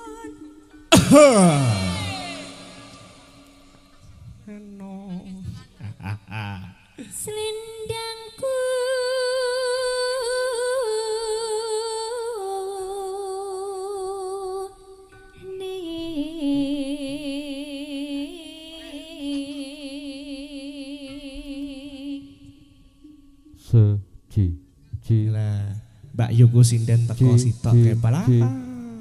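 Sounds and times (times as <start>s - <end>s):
woman singing unaccompanied: 0.0s - 5.8s, 7.0s - 23.6s, 28.4s - 29.0s.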